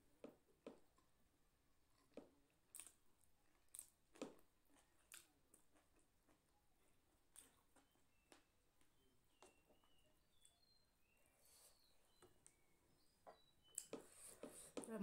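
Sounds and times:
mouth clicks and smacks: 0:01.9 - 0:03.0, 0:03.6 - 0:06.4, 0:07.3 - 0:08.5, 0:13.2 - 0:15.0
person chewing: 0:01.9 - 0:10.0.

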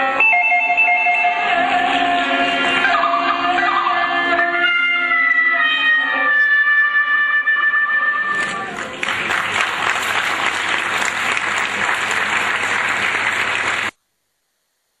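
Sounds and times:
audience applauding: 0:08.3 - 0:14.0.

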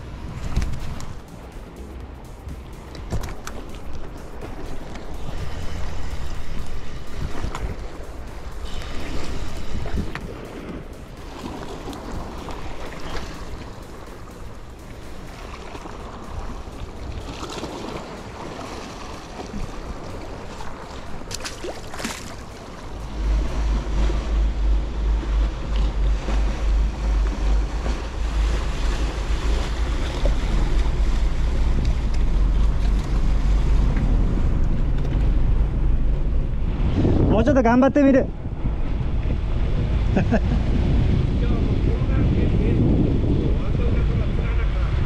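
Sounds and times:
sea washing against rocks: 0:00.0 - 0:35.3
boat engine rumble: 0:00.0 - 0:45.0
wind buffeting microphone: 0:00.0 - 0:45.0.

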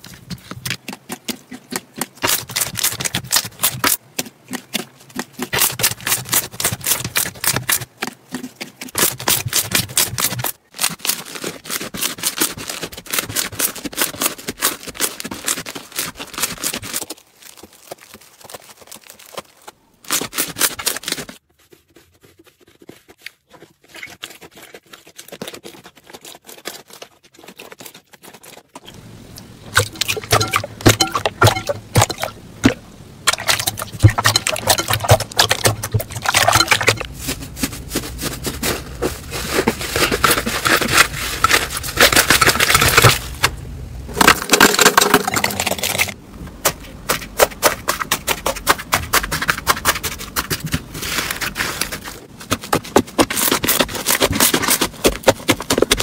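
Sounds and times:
hands squelching slime: 0:00.0 - 0:43.5.

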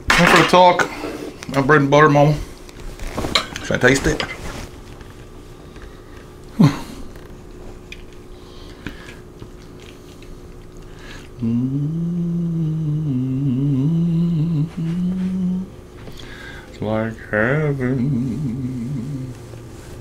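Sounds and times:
man humming mmm: 0:06.5 - 0:07.1, 0:11.4 - 0:16.3, 0:17.2 - 0:19.8
man chewing: 0:07.1 - 0:11.4.

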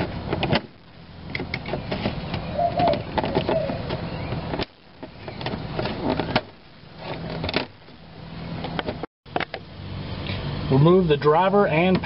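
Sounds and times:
plastic scraping and handling: 0:01.4 - 0:08.0.

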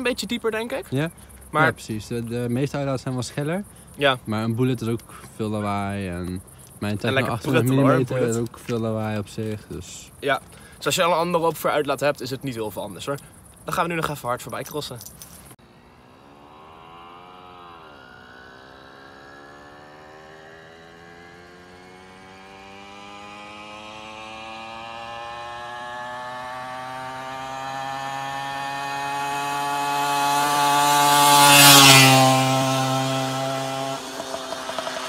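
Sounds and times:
moped engine revving past: 0:15.6 - 0:35.0.

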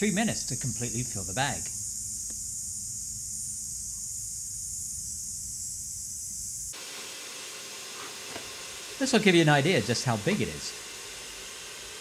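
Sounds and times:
faint even hiss: 0:00.0 - 0:12.0
shop vac blowing air: 0:06.6 - 0:12.0.

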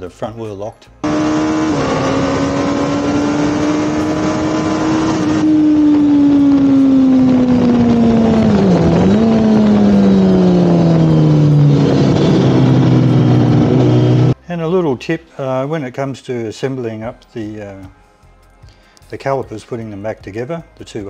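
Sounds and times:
motorcycle engine running hard: 0:01.0 - 0:14.4
wind rush: 0:02.2 - 0:14.3.

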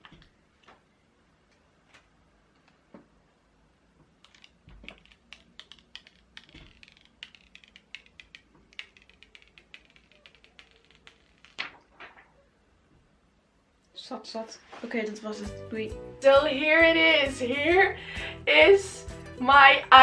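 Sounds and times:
plastic film peeling crackles: 0:04.2 - 0:12.2.

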